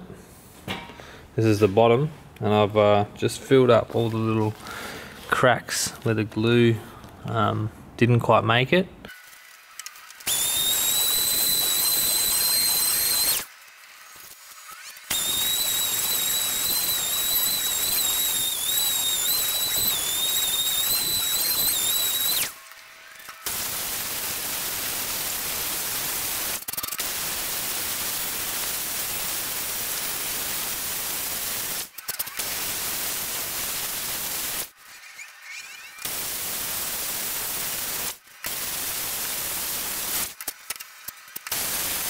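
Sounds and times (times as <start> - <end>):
power tool hissing: 9.1 - 42.0
orbital sander whining: 9.6 - 26.0.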